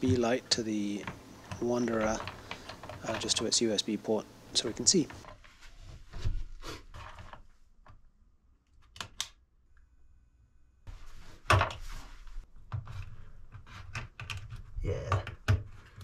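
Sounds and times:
hands handling cables and connectors: 0:00.0 - 0:03.6.

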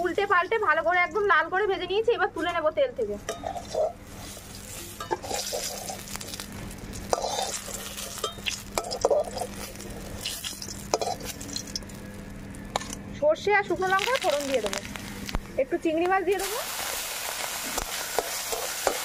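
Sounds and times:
oil sizzling: 0:03.0 - 0:19.0
metal spatula scraping a wok: 0:03.3 - 0:06.1, 0:07.1 - 0:09.6, 0:10.3 - 0:11.4.

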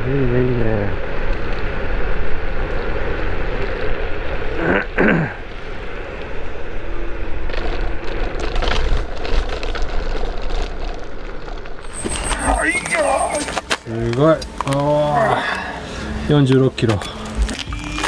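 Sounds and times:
wind rushing over microphone: 0:00.0 - 0:09.1
road noise: 0:00.0 - 0:18.0.

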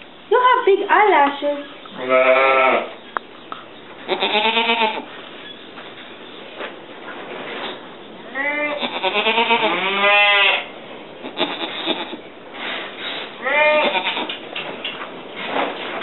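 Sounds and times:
goat bleating: 0:02.0 - 0:03.0, 0:04.1 - 0:05.1, 0:08.2 - 0:12.3, 0:13.4 - 0:14.4.

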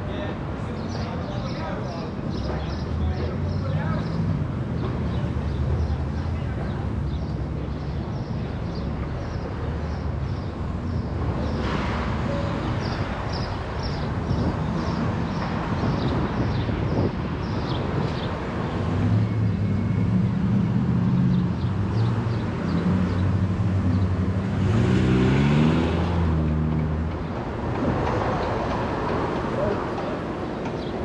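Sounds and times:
traffic rumble: 0:00.0 - 0:31.0
vehicle engine humming: 0:18.6 - 0:31.0.

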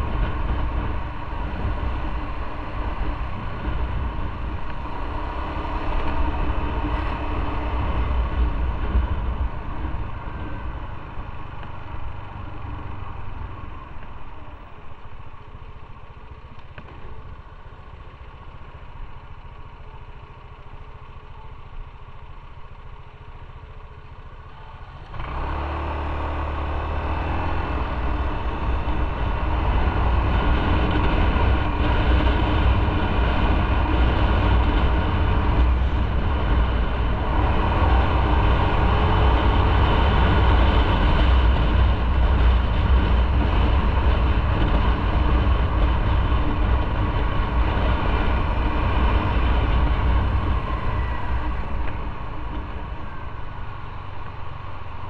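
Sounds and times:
wind noise: 0:00.0 - 0:14.4, 0:27.0 - 0:55.0
motorcycle engine: 0:00.0 - 0:55.0.

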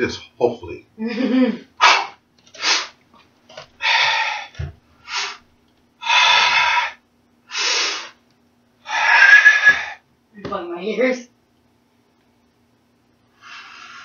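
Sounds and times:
man breathing forcefully: 0:03.8 - 0:05.4, 0:06.0 - 0:08.2.

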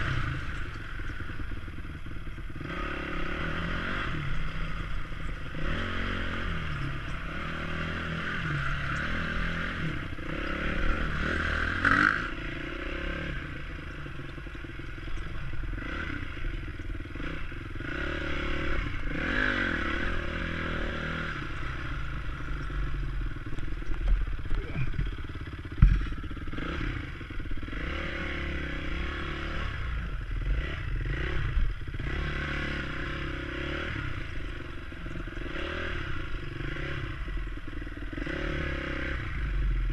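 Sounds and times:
dirt bike engine blipping: 0:00.0 - 0:39.1
clattering knocks from bike: 0:25.0 - 0:26.2.

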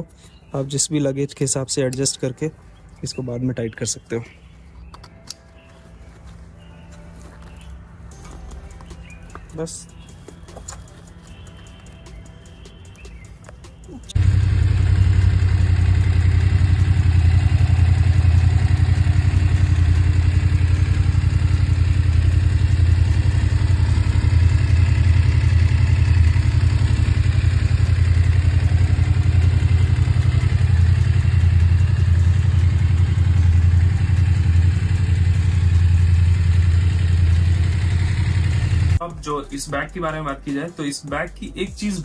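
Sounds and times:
motorcycle engine idling: 0:05.6 - 0:39.0.

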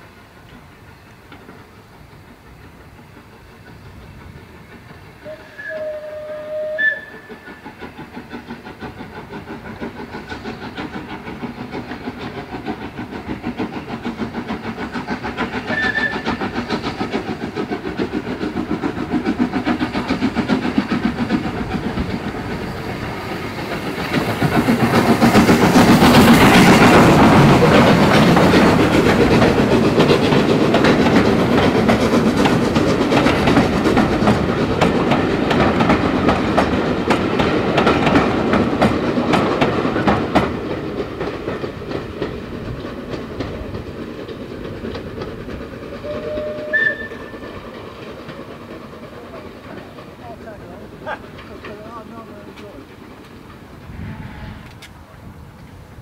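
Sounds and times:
steam locomotive exhaust beats: 0:00.0 - 0:56.0
train wheels clickety-clack: 0:00.0 - 0:56.0.

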